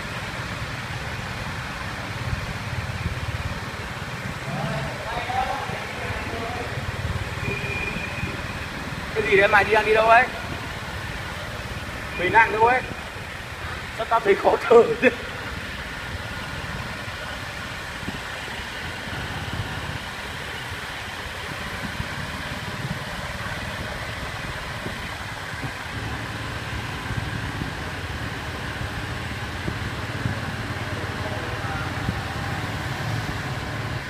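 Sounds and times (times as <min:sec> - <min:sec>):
road noise: 0:00.0 - 0:34.0
scooter engines droning: 0:00.0 - 0:34.0.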